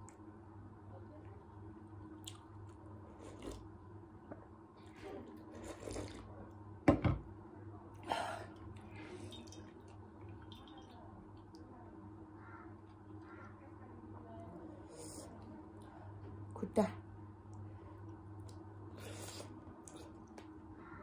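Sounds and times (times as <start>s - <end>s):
slurping soup: 5.4s - 6.3s
bowl knocking on wooden table: 6.9s - 7.3s.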